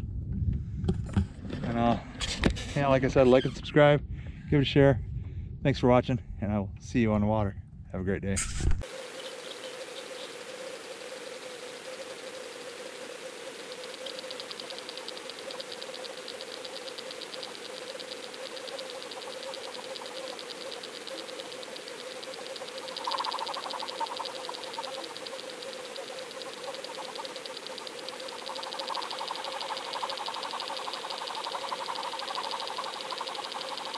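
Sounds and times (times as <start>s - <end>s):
rapid even ticking: 8.8s - 33.9s
underwater hum: 8.8s - 33.9s.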